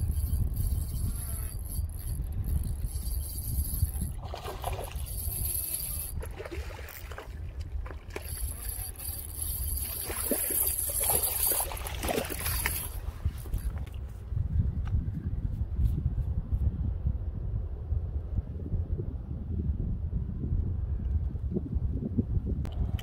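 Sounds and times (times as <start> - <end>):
wind rumble on microphone: 0.0 - 23.0
water splashing: 4.2 - 5.2, 6.2 - 13.1
fish thrashing at surface: 6.1 - 13.0.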